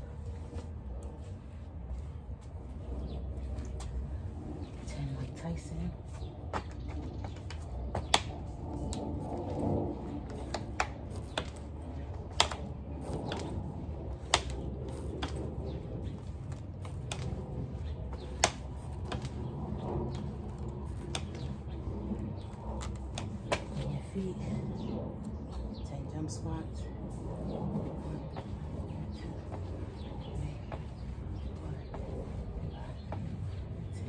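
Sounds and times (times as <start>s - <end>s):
steady low rumble: 0.0s - 34.0s.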